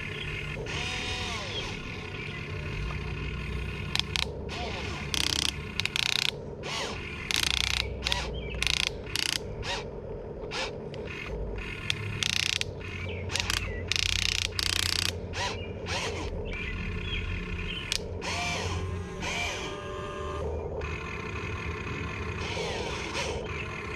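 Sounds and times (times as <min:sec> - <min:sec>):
low hum: 0:00.0 - 0:23.9
small electric motors whirring: 0:00.0 - 0:23.9.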